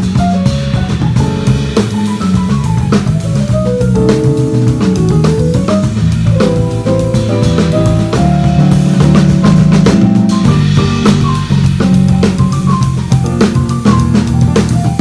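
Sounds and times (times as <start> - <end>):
drum kit: 0.0 - 15.0
electric bass: 0.0 - 15.0
melody line: 3.9 - 9.0.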